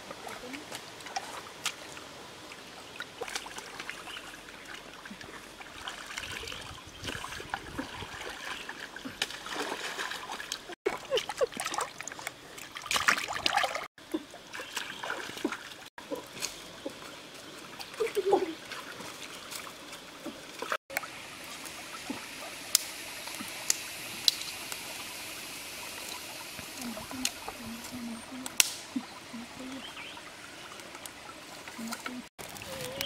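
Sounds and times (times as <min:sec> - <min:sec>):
stream water trickling: 0:00.0 - 0:33.0
hands splashing in water: 0:11.4 - 0:13.9.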